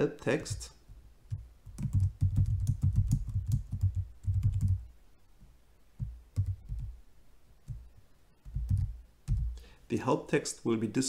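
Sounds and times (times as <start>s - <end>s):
keyboard typing: 1.3s - 4.8s, 6.0s - 7.0s, 7.7s - 9.6s.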